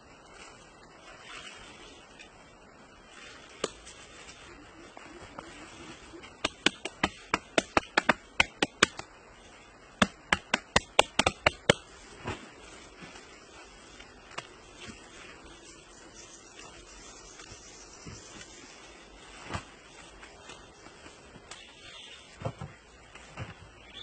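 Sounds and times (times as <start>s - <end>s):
hand slapping wet mud: 10.0s - 11.8s.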